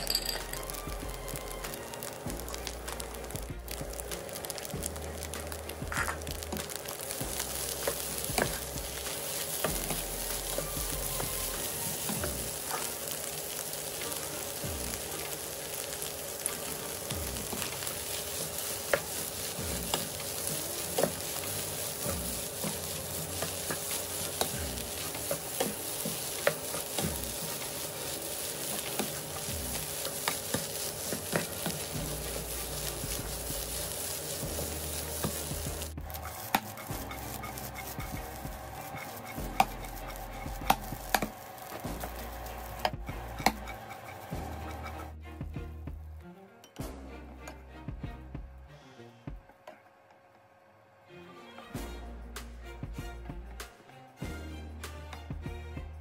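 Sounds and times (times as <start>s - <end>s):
rice sizzling in hot pan: 0.0s - 45.2s
spatula scraping against pan: 6.0s - 45.2s.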